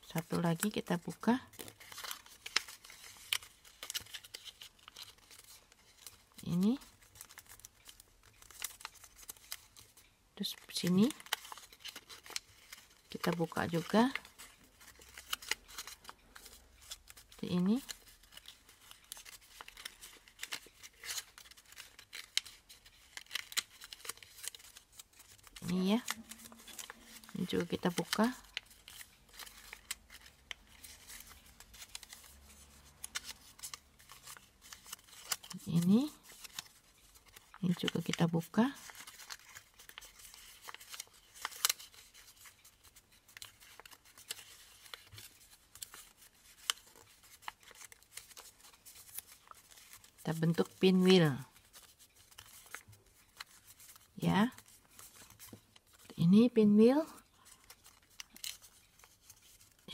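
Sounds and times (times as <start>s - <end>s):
paper rustling and crinkling: 0.0s - 56.2s, 57.0s - 59.9s
crisp paper snaps: 11.0s - 56.1s, 57.6s - 59.9s.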